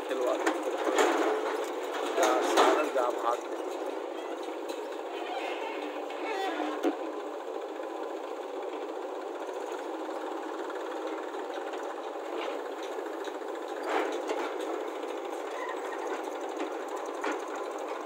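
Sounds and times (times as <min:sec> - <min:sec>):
diesel tractor engine clattering: 0:00.0 - 0:18.0
sharp engine knocks: 0:00.3 - 0:07.0.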